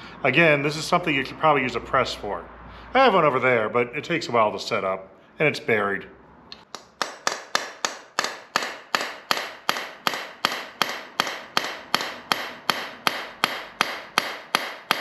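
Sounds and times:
hammer tapping metal punch: 0:06.6 - 0:15.0.

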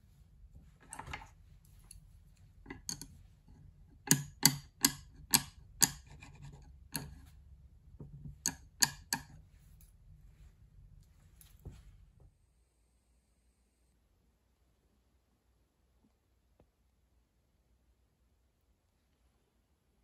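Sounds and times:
chopsticks clicking on ceramic rest: 0:02.7 - 0:03.2, 0:04.0 - 0:07.3, 0:08.3 - 0:09.4.

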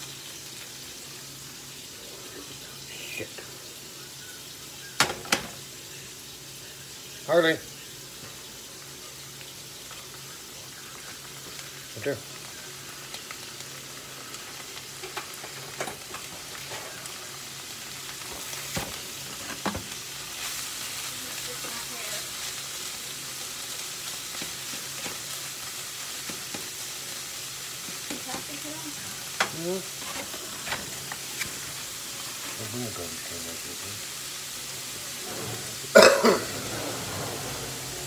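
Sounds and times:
meat sizzling in a frying pan: 0:00.0 - 0:38.0
utensil scraping a pan: 0:35.2 - 0:38.0.

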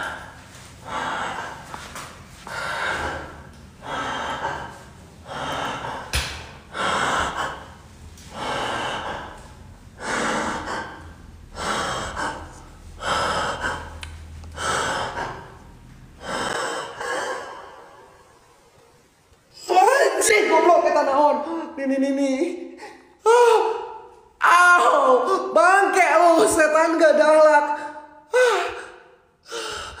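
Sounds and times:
man breathing heavily: 0:00.0 - 0:18.3.

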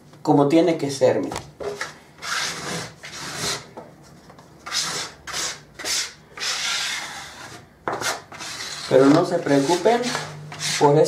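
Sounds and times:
bench scraper scraping wood: 0:01.6 - 0:03.8, 0:04.6 - 0:11.0.

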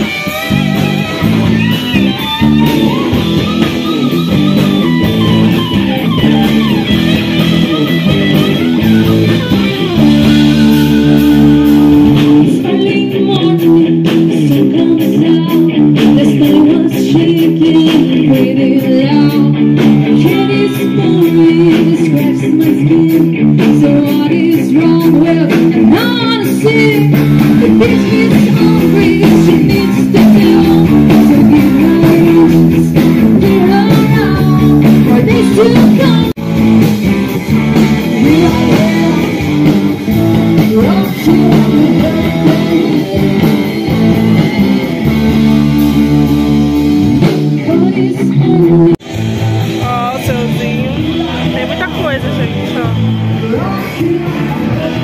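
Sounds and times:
live rock band: 0:00.0 - 0:55.0
woman singing: 0:09.3 - 0:36.5, 0:37.8 - 0:49.0.

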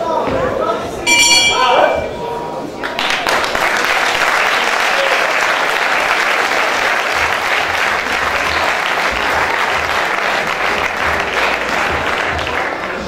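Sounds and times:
crowd applauding: 0:02.8 - 0:13.0.

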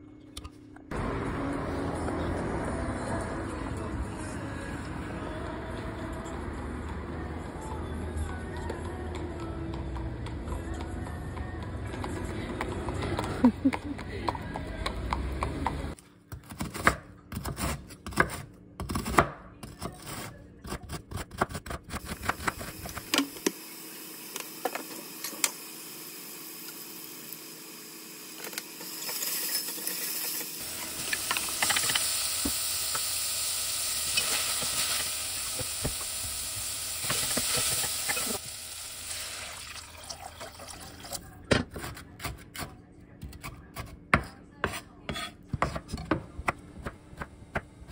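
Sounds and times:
scallions sizzling in oil: 0:22.3 - 0:39.6
knife chopping on wooden board: 0:43.3 - 0:47.7.

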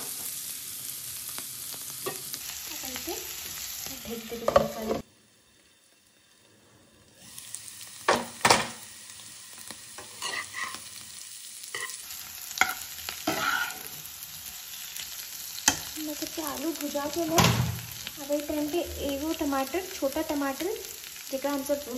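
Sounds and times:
potatoes sizzling in oil: 0:00.0 - 0:21.9
spatula scraping and knocking pan: 0:12.6 - 0:14.0.

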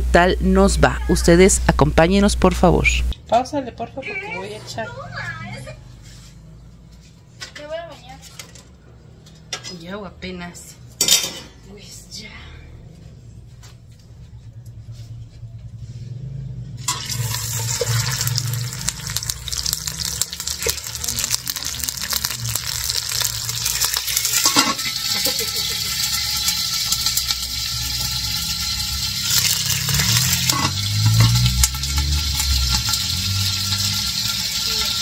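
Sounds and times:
chicken sizzling in a pan: 0:16.9 - 0:35.0.

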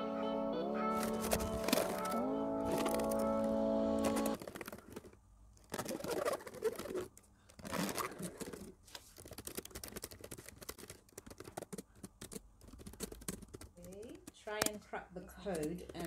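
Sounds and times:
typing on laptop keyboard: 0:05.7 - 0:14.8.

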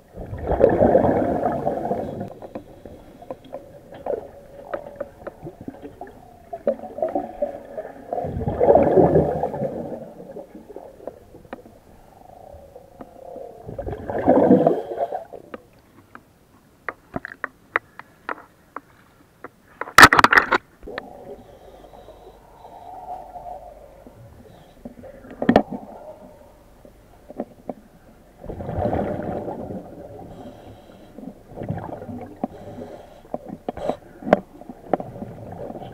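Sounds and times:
gas bubbling underwater: 0:00.0 - 0:02.4, 0:04.0 - 0:11.4, 0:12.0 - 0:15.4, 0:28.4 - 0:30.3.

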